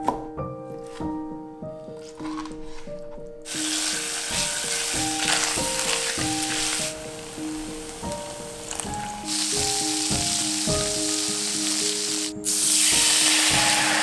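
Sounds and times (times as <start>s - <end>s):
light background music: 0.0s - 14.0s
food sizzling in oil: 3.5s - 14.0s.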